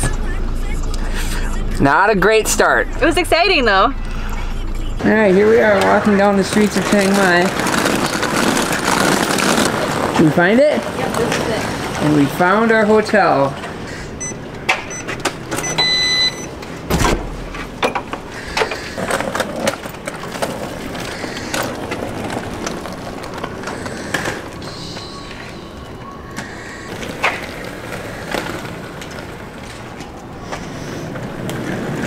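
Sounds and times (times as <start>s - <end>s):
suitcase wheels clattering over paving: 5.3s - 14.0s, 17.6s - 32.0s
key card reader beep: 14.2s - 16.6s
footsteps: 16.7s - 32.0s
loud thump: 16.9s - 17.6s.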